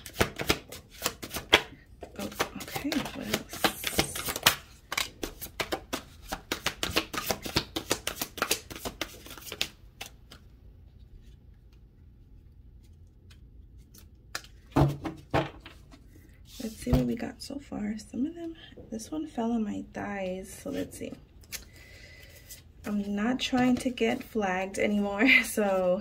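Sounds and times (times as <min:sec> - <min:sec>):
cards being shuffled: 0:00.0 - 0:10.5, 0:12.7 - 0:16.9.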